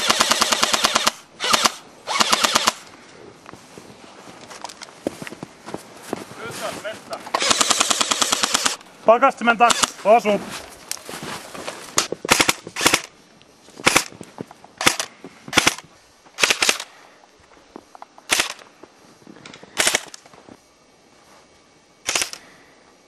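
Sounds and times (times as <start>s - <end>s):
airsoft rifle bursts: 0.0s - 2.9s, 7.3s - 8.8s, 9.6s - 10.2s, 12.0s - 13.1s, 13.8s - 14.1s, 14.8s - 15.8s, 16.4s - 17.0s, 18.3s - 18.6s, 19.8s - 20.2s, 22.0s - 22.5s.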